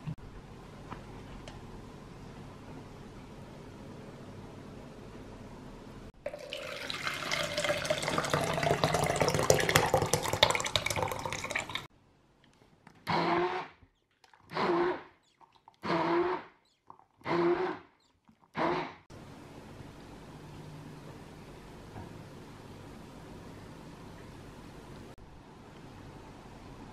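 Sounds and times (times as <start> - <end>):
liquid pouring into plastic jug: 6.2 - 11.9.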